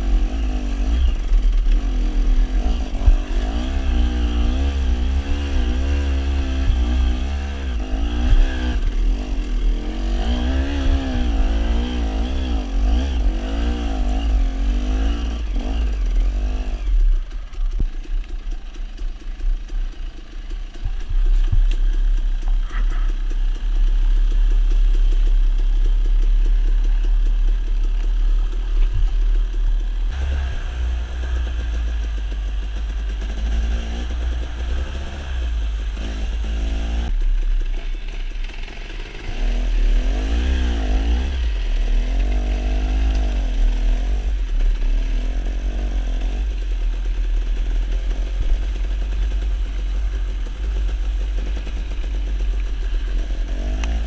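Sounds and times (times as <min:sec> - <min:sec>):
dirt bike engine revving: 0:00.0 - 0:17.6, 0:28.1 - 0:37.1, 0:38.4 - 0:54.0.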